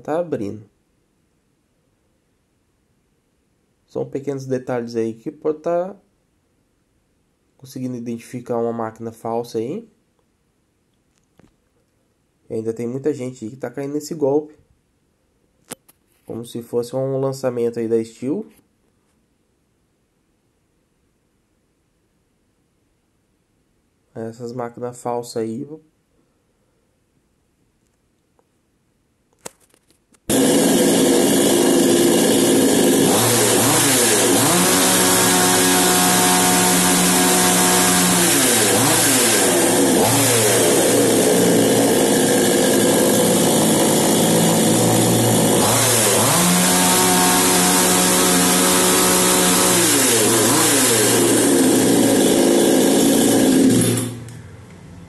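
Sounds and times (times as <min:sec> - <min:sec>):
chainsaw engine revving: 0:30.3 - 0:54.5.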